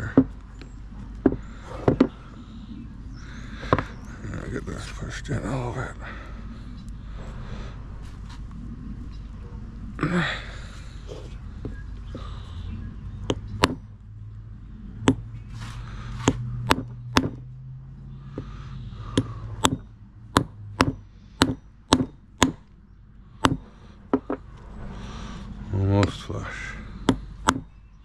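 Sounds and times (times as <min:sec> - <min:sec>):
hammer tapping on metal: 0:15.0 - 0:15.2, 0:16.2 - 0:17.5, 0:19.2 - 0:22.6, 0:23.4 - 0:24.4.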